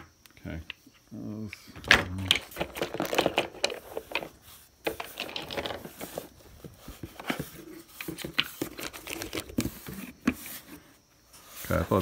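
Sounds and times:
plastic pieces clicking together: 1.5s - 6.2s
plastic bags rustling: 2.1s - 10.2s.

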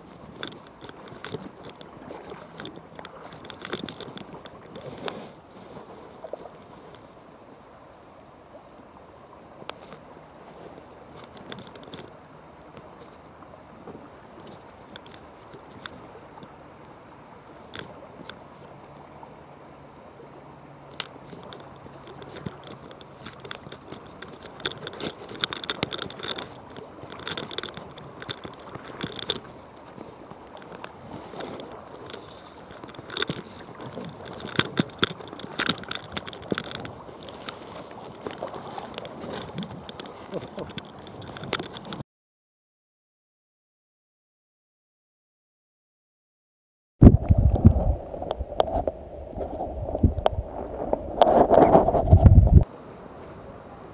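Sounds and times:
splashes and knocks: 0.0s - 7.1s, 21.0s - 42.0s, 47.0s - 52.7s
river water running: 0.0s - 42.0s, 47.0s - 53.9s.

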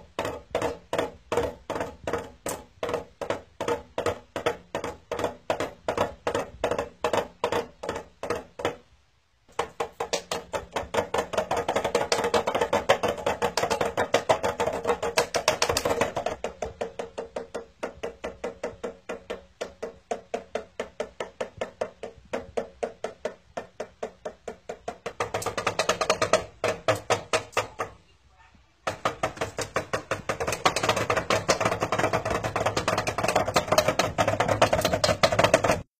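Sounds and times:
drumsticks tapping drum: 0.0s - 8.8s, 9.5s - 28.0s, 28.9s - 35.9s
bird pecking toy drum: 9.5s - 28.0s, 28.8s - 35.9s.

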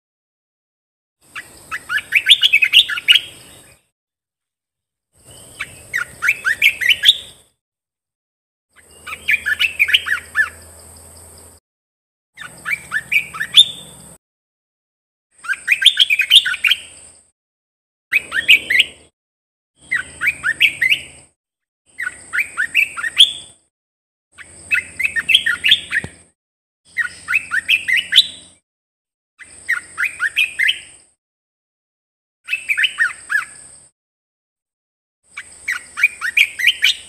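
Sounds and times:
bird singing rising notes: 1.3s - 3.8s, 5.2s - 7.5s, 8.8s - 10.8s, 12.4s - 14.2s, 18.2s - 19.1s, 19.8s - 21.3s, 24.4s - 26.3s, 26.9s - 28.6s.

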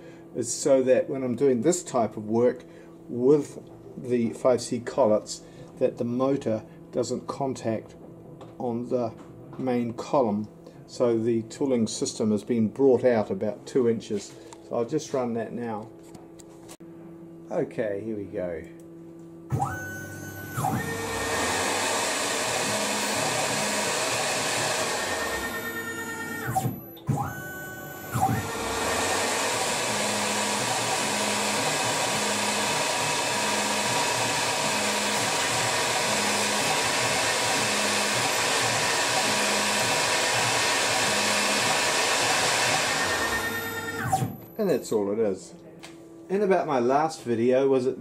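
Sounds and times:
lathe spindle whirring: 19.5s - 44.4s
drill cutting plastic: 19.5s - 44.5s.

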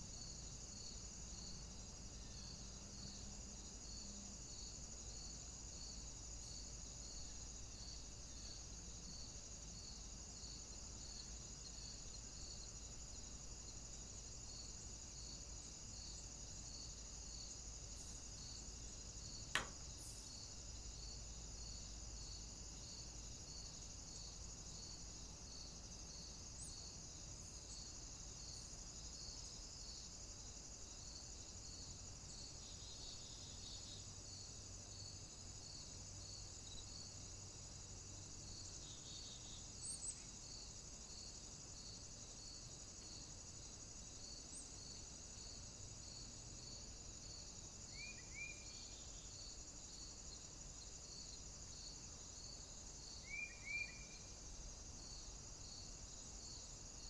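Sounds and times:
insects hissing: 0.0s - 57.0s
sharp click: 19.5s - 19.9s.

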